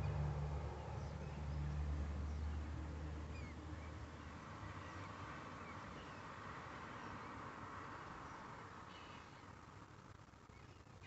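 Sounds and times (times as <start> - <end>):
low steady hum: 0.0 - 4.7
faint bird chirps: 0.0 - 6.3, 8.2 - 11.0.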